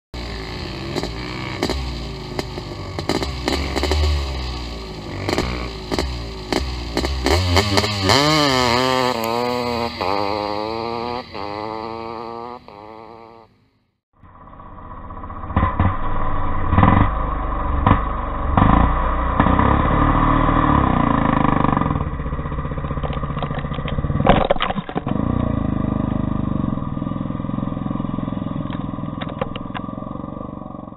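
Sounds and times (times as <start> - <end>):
motocross bike accelerating: 0.2 - 30.9
dirt hitting camera: 0.9 - 12.8.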